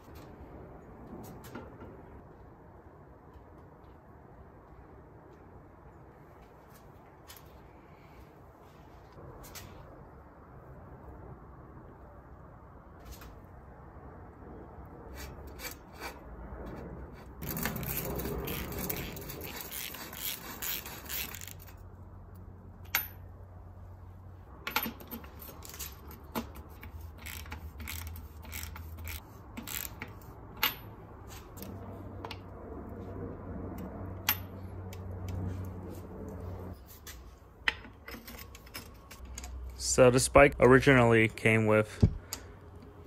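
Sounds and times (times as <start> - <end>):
metal scraping and rubbing: 15.1 - 21.8, 24.9 - 32.3
ratchet clicks: 17.4 - 21.7, 25.2 - 30.8.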